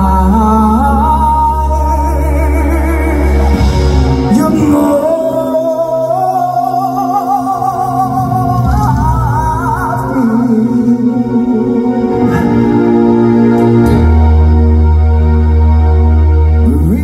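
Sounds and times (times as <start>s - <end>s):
man singing into microphone: 0.0s - 12.6s
band accompaniment: 0.0s - 17.0s.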